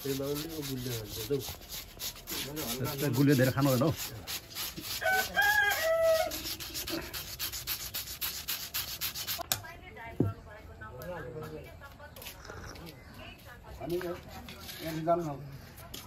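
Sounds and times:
rhythmic scraping strokes: 0.0s - 9.4s
rooster crowing: 5.0s - 6.6s.

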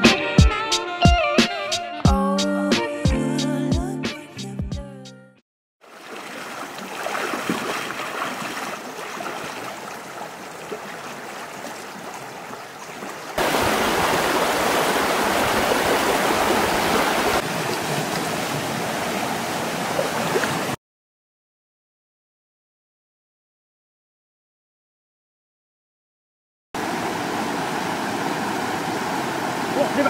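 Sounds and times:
stream rushing over rocks: 5.8s - 20.8s, 26.8s - 30.0s.

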